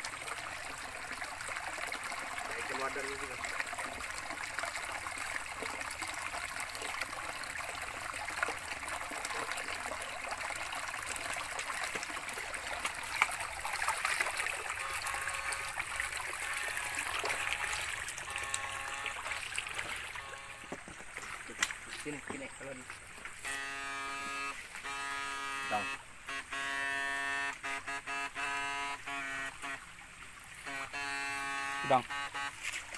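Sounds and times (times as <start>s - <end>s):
stream trickling over stones: 0.0s - 32.9s
feet wading through water: 3.4s - 26.0s, 29.2s - 32.9s.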